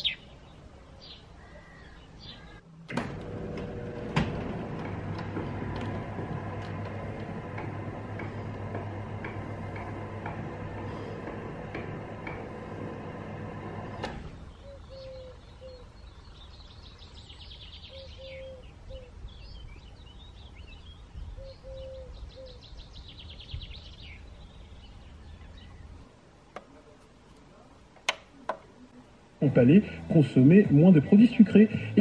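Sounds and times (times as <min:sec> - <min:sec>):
songbird trilling: 0:00.0 - 0:00.3, 0:14.5 - 0:25.8
low outdoor rumble: 0:00.4 - 0:16.6
low hum with ticking: 0:03.2 - 0:14.1.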